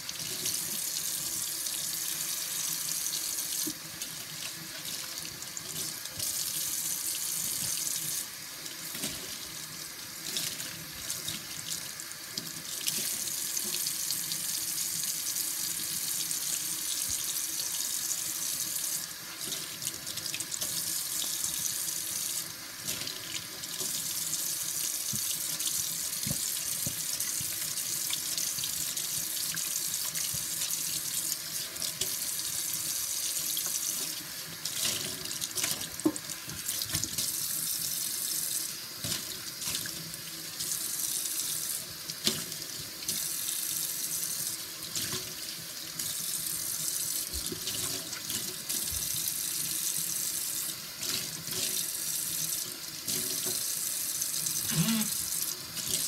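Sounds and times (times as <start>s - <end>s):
tap water splashing into steel sink: 34.7s - 37.3s.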